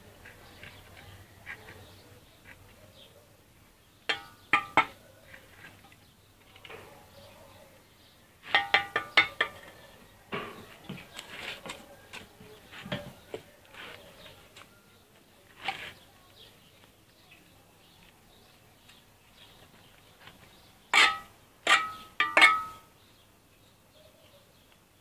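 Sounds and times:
trowel scraping bricks and mortar: 0:20.4 - 0:22.8.

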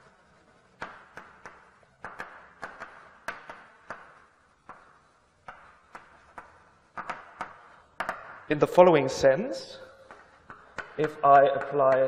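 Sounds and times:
chalk scratching on blackboard: 0:00.0 - 0:08.2
chalk tapping on blackboard: 0:00.0 - 0:08.5, 0:10.0 - 0:12.0.

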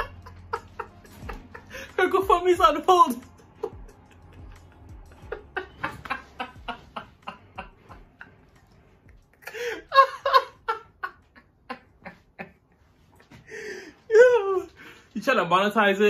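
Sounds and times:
man laughing hard: 0:00.0 - 0:02.0, 0:03.3 - 0:08.4, 0:09.4 - 0:12.7
breathy gasp: 0:13.4 - 0:14.0.

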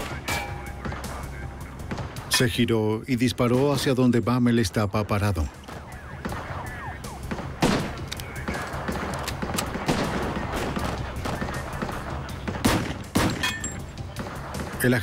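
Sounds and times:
gunshots: 0:00.0 - 0:02.5, 0:05.6 - 0:15.0.

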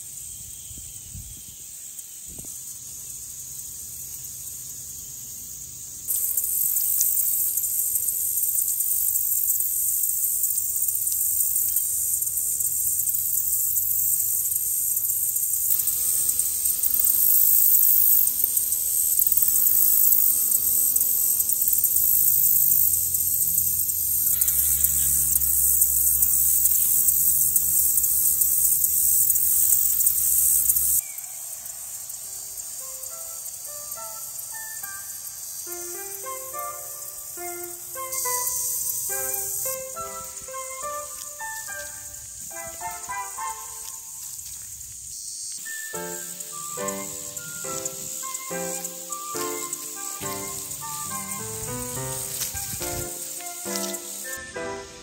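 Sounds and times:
high-pitched insect chorus: 0:00.0 - 0:55.0
honeybees buzzing: 0:06.1 - 0:31.0, 0:45.9 - 0:55.0.

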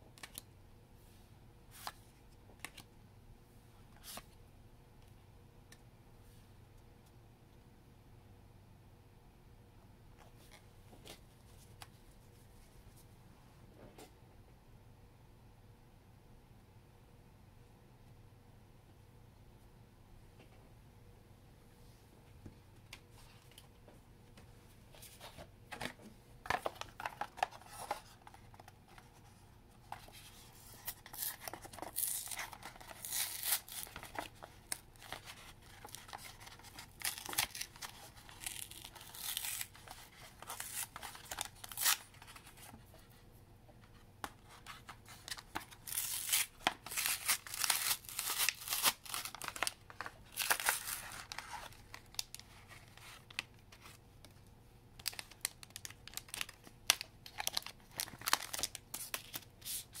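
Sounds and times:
foil wrapper tearing and crinkling: 0:30.8 - 0:42.1, 0:45.6 - 0:52.4, 0:55.0 - 0:59.8.

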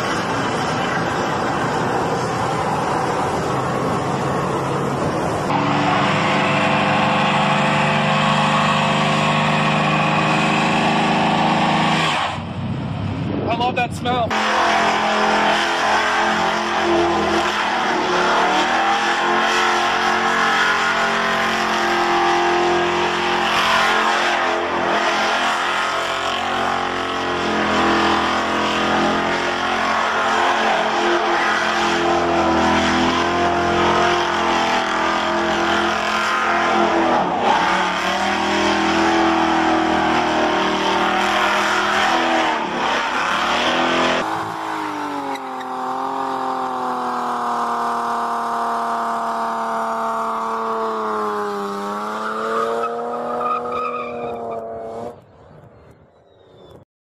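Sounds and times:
car engine revving high: 0:00.0 - 0:55.2
tyres squealing: 0:51.0 - 0:54.9.

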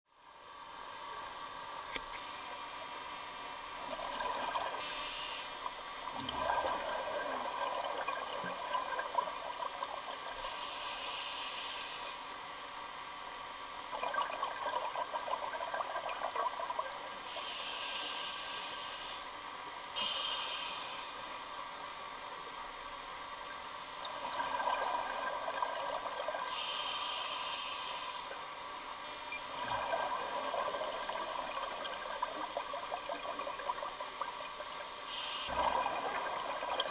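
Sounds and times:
regulator hissing inhale: 0:04.8 - 0:05.7, 0:10.3 - 0:12.4, 0:17.2 - 0:19.3, 0:20.0 - 0:21.4, 0:26.4 - 0:28.4, 0:35.0 - 0:35.8
bubbling exhale: 0:29.5 - 0:34.2, 0:35.1 - 0:36.9.

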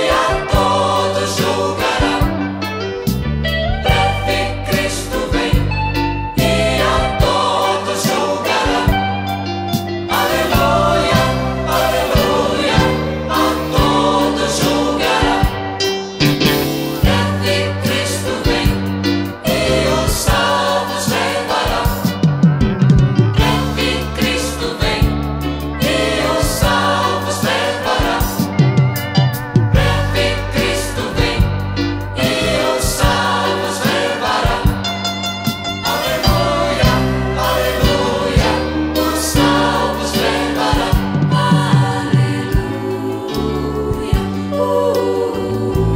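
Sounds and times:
bass line: 0:00.0 - 0:45.9
choir singing in harmony: 0:00.0 - 0:45.9
drum hits: 0:16.2 - 0:38.6.

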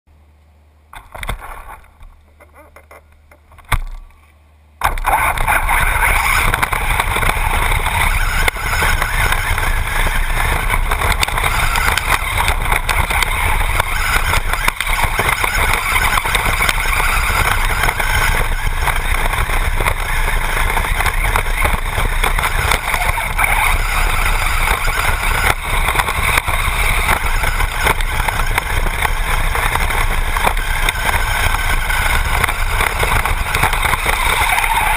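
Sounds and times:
rc car motor and tyres on dirt: 0:00.9 - 0:34.9.

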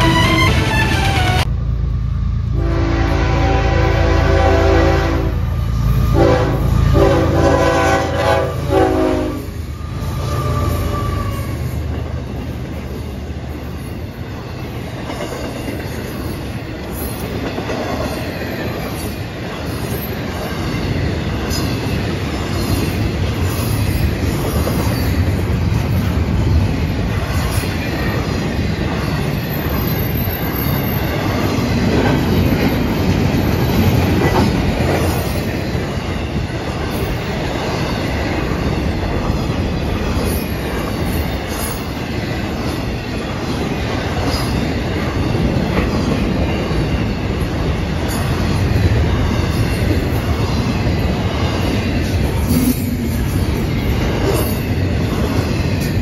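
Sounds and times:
train horn blasts: 0:00.0 - 0:01.5, 0:02.6 - 0:09.5
train wheels on rails: 0:00.0 - 0:56.0.

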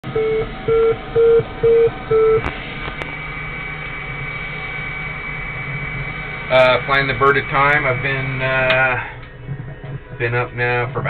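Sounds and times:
electronic hum and hiss: 0:00.0 - 0:11.0
short electronic beeps: 0:00.1 - 0:02.5.

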